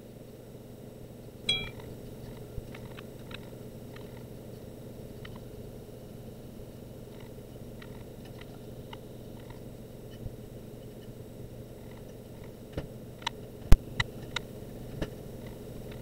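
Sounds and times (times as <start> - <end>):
low room hum: 0.0 - 16.0
sharp click with ring: 1.5 - 1.8.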